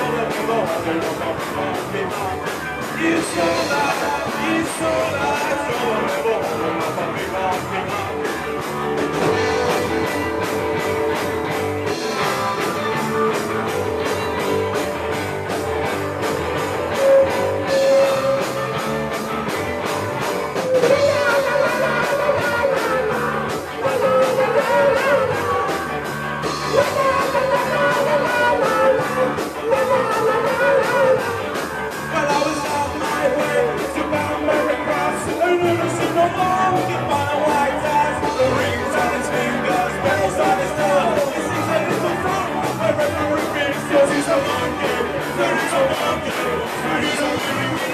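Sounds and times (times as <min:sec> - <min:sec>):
man singing into a microphone: 0:00.0 - 0:10.1, 0:20.6 - 0:47.9
rock band playing: 0:00.0 - 0:47.9.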